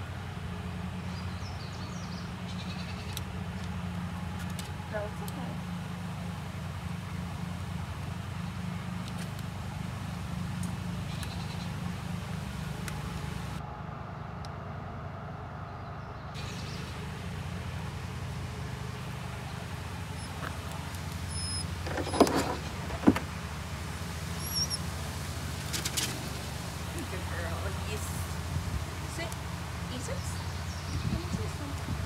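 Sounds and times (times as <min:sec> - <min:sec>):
low mechanical hum: 0:00.0 - 0:32.0.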